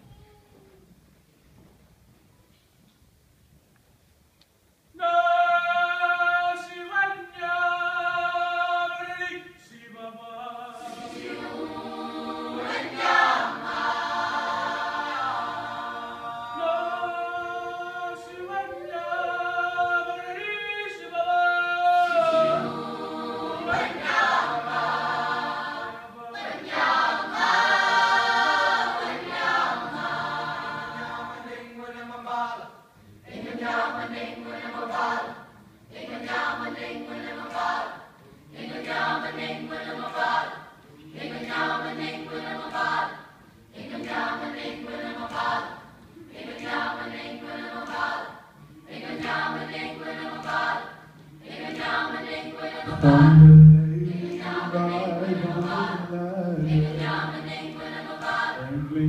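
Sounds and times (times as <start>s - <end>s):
choir singing chords: 10.7s - 17.2s, 22.0s - 31.8s, 33.2s - 59.0s
solo voice singing: 52.9s - 57.3s, 58.6s - 59.0s.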